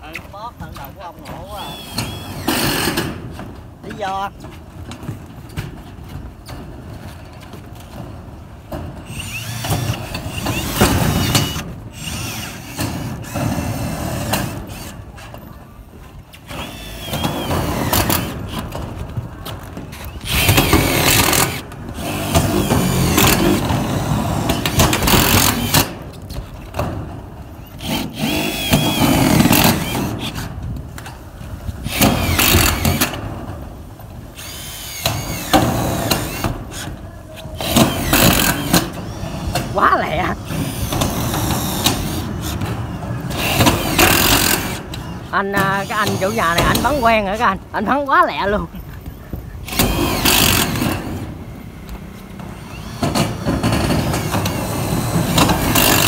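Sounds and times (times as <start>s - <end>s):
screw guns driving screws into metal: 43.3s - 45.0s, 53.0s - 56.0s.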